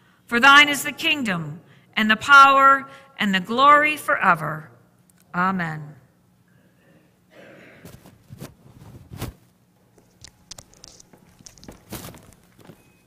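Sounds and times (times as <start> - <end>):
cloth rustling on microphone: 7.9 - 12.9.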